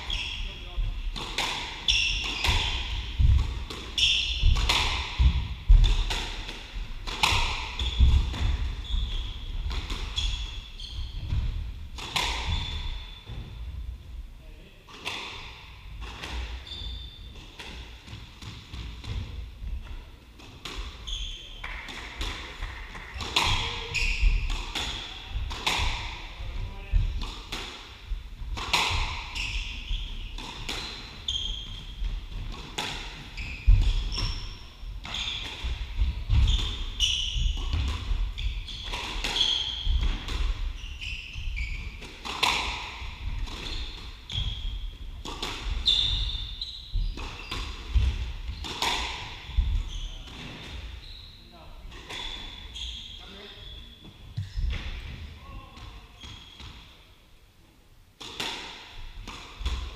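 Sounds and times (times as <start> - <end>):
shoes squeaking on wooden floor: 7.7 - 11.6, 23.4 - 24.5, 29.0 - 32.3, 33.2 - 40.1, 40.7 - 42.1, 43.0 - 54.7.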